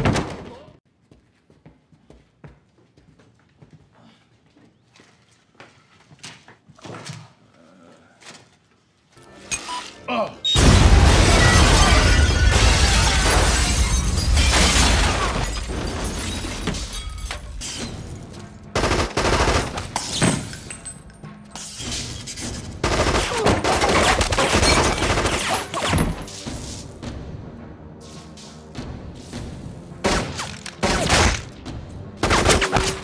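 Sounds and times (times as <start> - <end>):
film score music: 16.8 - 33.0.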